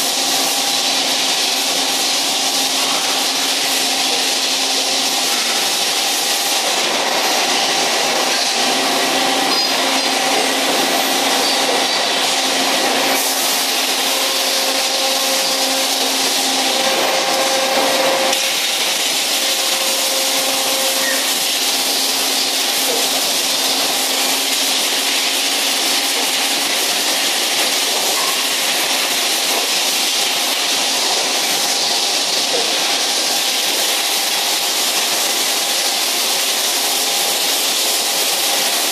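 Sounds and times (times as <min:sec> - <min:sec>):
mid-pitched machine whine: 0:00.0 - 0:25.5
machine hiss: 0:00.0 - 0:38.9.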